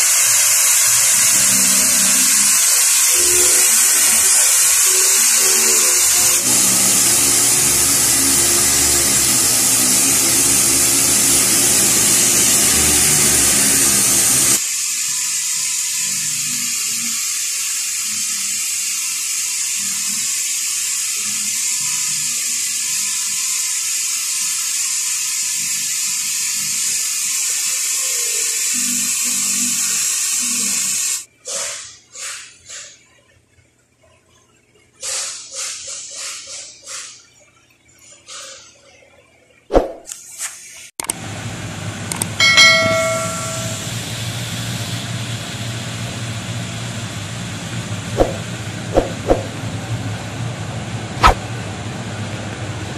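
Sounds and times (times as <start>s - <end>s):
air sander whirring: 0.8s - 14.6s
bell-like notification ding: 42.4s - 44.0s.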